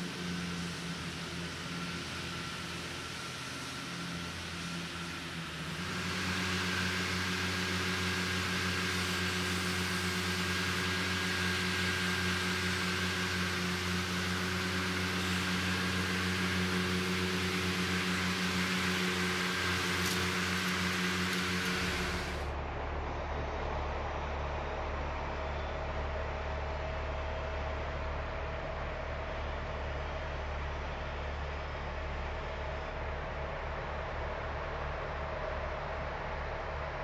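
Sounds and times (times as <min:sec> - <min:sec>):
tractor engines humming: 0:00.0 - 0:37.0
blower air rush: 0:13.0 - 0:23.4.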